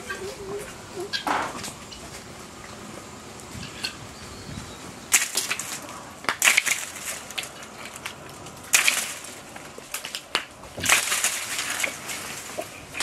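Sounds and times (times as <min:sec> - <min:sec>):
leaves thrashing: 0:00.0 - 0:13.0.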